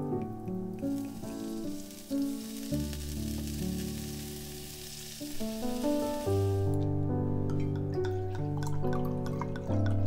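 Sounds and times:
background music: 0.0s - 10.0s
vinegar sizzling in hot wok: 0.3s - 6.9s.

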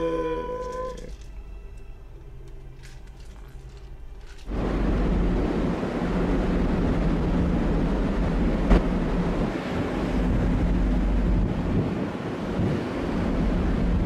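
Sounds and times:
steady low rumble: 0.3s - 14.0s
wind buffeting microphone: 4.5s - 14.0s.

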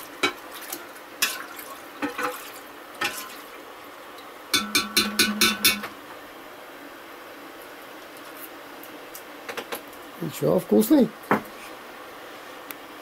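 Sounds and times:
metal spoon clinking in a pot: 4.6s - 5.9s.

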